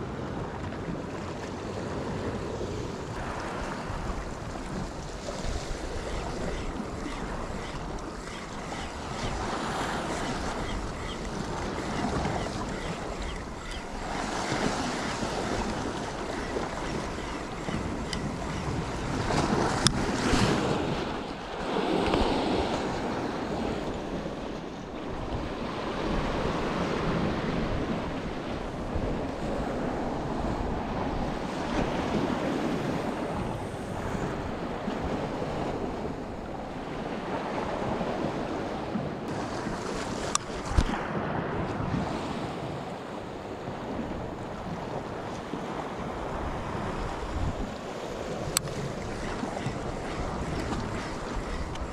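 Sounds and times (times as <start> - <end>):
wind buffeting microphone: 0.0 - 51.9
waves washing against rocks: 1.9 - 23.8.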